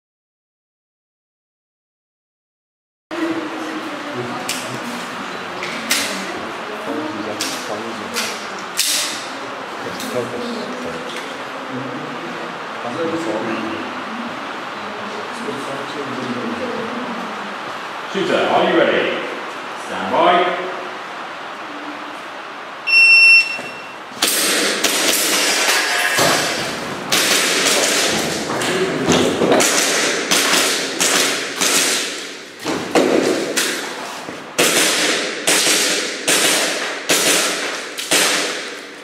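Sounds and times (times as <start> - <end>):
shot timer beep: 22.9 - 24.0
airsoft pistol shots: 24.2 - 28.3, 29.5 - 32.4, 34.6 - 39.0.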